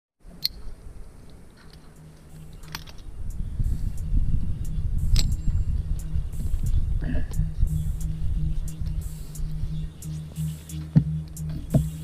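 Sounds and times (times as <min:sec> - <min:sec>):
wind rumble on microphone: 0:02.3 - 0:10.4.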